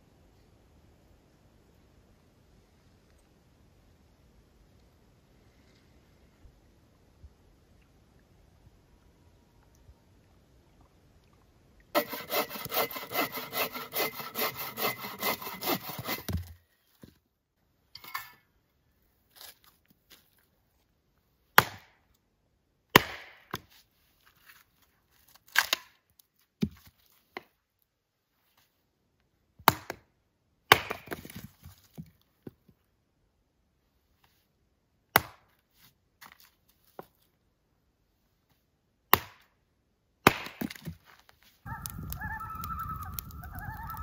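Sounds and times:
hand saw cutting wood: 12.0s - 16.5s
hatchet splitting firewood: 12.0s - 16.6s, 22.9s - 23.7s, 30.7s - 32.1s, 35.2s - 35.5s, 39.1s - 39.5s, 40.2s - 41.0s.

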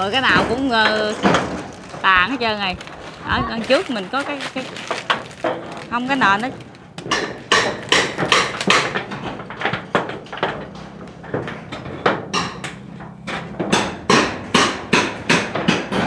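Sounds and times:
hammer blows on iron roof: 7.0s - 16.0s.

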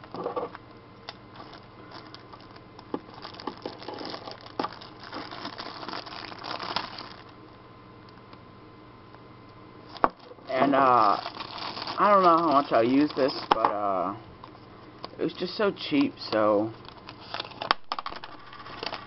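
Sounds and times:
plastic bag crinkling: 1.1s - 7.3s, 9.9s - 13.7s, 16.8s - 19.0s.

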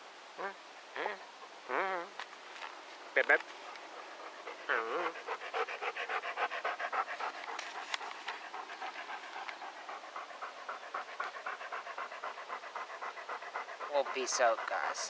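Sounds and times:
dog panting: 3.3s - 15.0s.

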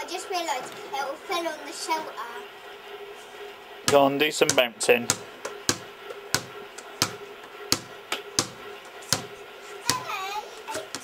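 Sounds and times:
plastic ball bouncing on paving: 3.9s - 9.3s, 9.9s - 10.1s.

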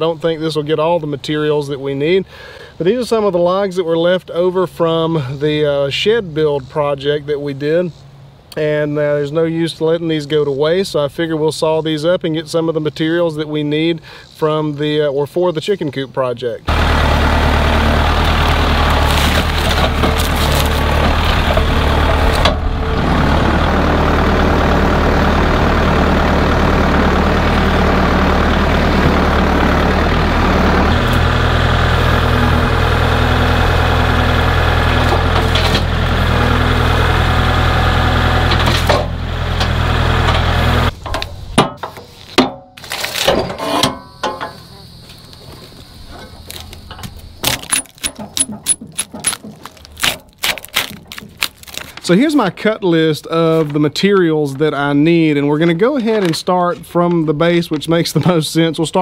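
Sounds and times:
tractor engine running: 16.7s - 52.8s
knocks and metal clanks: 38.5s - 51.4s.

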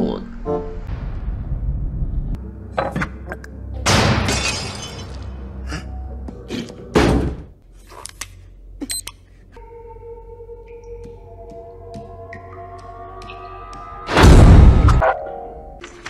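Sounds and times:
long crash: 0.8s - 2.4s, 14.1s - 15.0s
orchestral film music: 2.3s - 4.3s, 9.6s - 16.0s.

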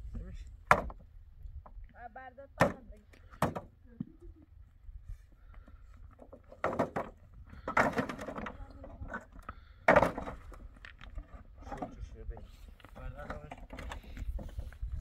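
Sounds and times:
knocks and thuds: 0.6s - 1.0s, 6.6s - 8.6s, 9.8s - 10.5s.

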